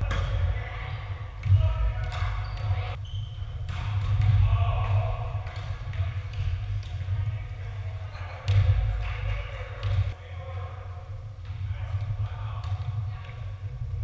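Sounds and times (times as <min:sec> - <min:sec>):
volleyball being hit: 0:03.6 - 0:07.1.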